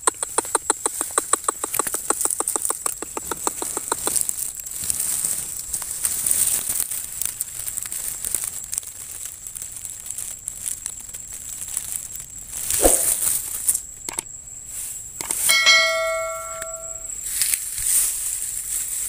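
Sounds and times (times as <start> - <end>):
dry grass rustling and crackling: 2.0 - 19.0
bell-like ding: 15.5 - 17.1.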